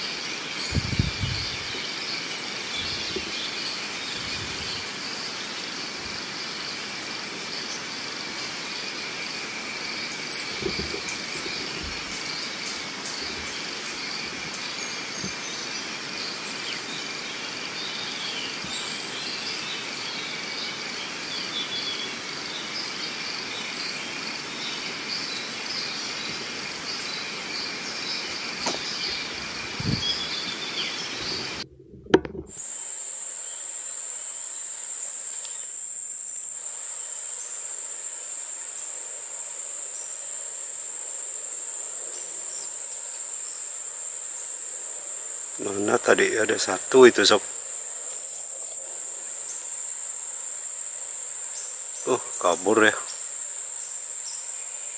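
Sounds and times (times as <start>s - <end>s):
bird chirps: 0.0s - 5.7s, 24.6s - 31.6s
high-pitched insect chorus: 0.0s - 54.9s
sharp pop: 28.6s - 28.9s, 31.7s - 32.6s.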